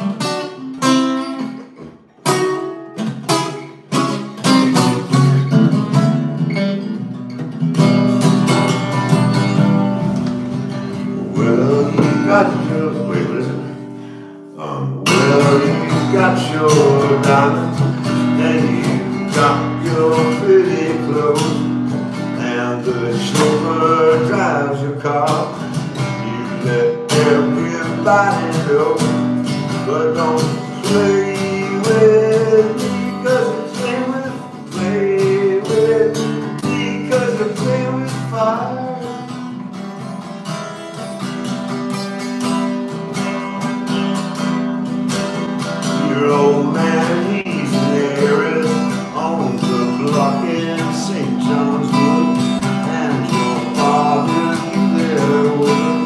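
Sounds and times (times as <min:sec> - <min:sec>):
acoustic guitar strumming chords: 0:00.0 - 0:56.0.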